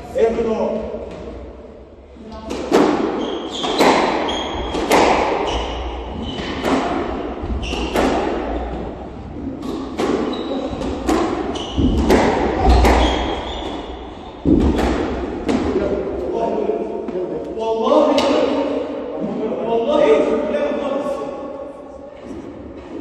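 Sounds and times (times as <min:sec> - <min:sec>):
squash ball hitting rackets and walls: 0:02.4 - 0:16.1
shoes squeaking on wooden floor: 0:03.2 - 0:04.8, 0:05.4 - 0:06.7, 0:07.4 - 0:08.1, 0:09.6 - 0:14.0.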